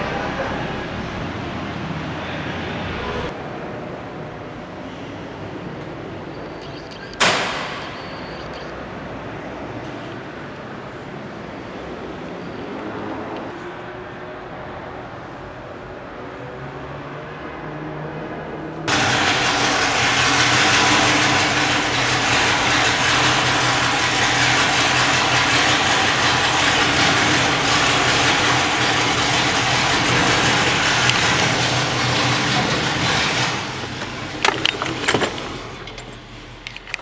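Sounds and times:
sharp clicks and knocks: 0:06.6 - 0:08.7, 0:28.2 - 0:37.0
truck engine running loudly: 0:18.5 - 0:37.0.

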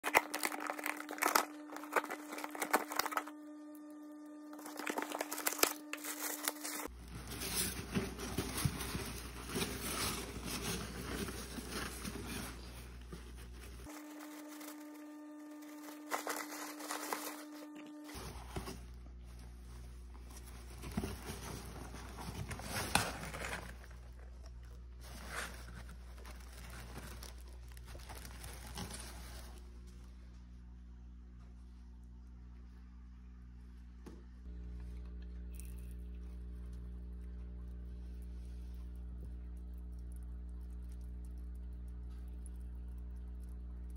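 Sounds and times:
packing tape tearing: 0:00.0 - 0:03.3, 0:04.5 - 0:12.4, 0:15.6 - 0:18.8
packing paper crinkling: 0:00.0 - 0:03.4, 0:04.5 - 0:30.0
steady hum: 0:00.0 - 0:43.9.

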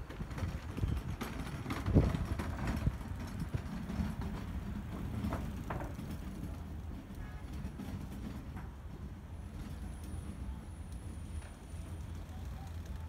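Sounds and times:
wind buffeting microphone: 0:00.0 - 0:09.7.

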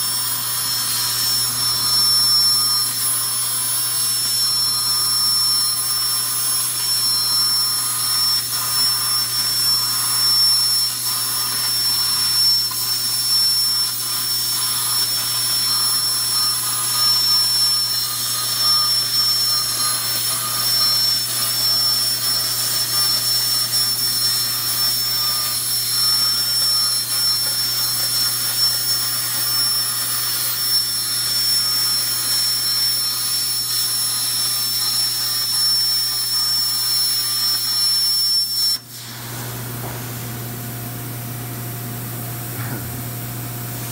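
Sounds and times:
plasma torch hissing: 0:38.5 - 0:40.2.

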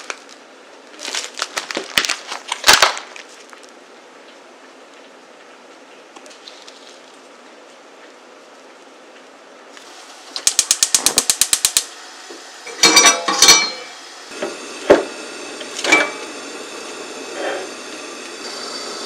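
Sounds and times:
steady gas hiss: 0:09.7 - 0:19.0
gas hob igniter ticking: 0:10.3 - 0:12.0
metal pot clanking on grate: 0:12.7 - 0:13.9, 0:15.8 - 0:16.3.

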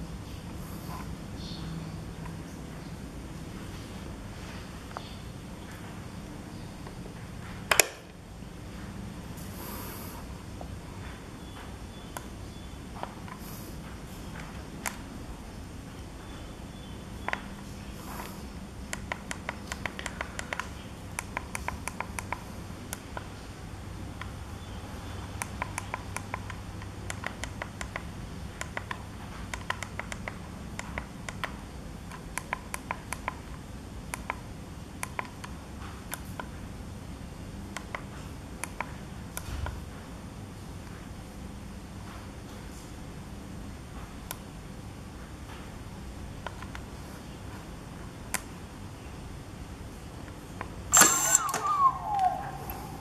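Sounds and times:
steady low hum: 0:00.0 - 0:53.0
push buttons clicking: 0:07.7 - 0:08.2, 0:50.9 - 0:53.0.

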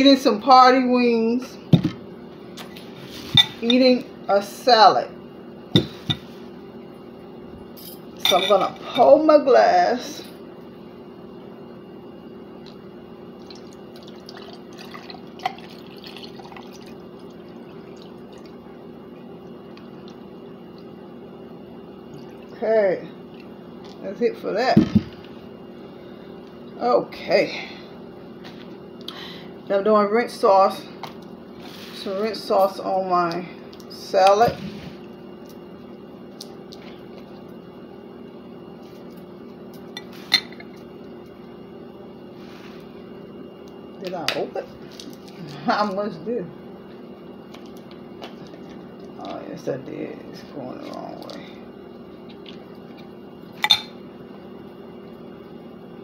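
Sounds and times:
steady low hum: 0:00.0 - 0:56.0
drink pouring into a glass: 0:13.4 - 0:18.6.

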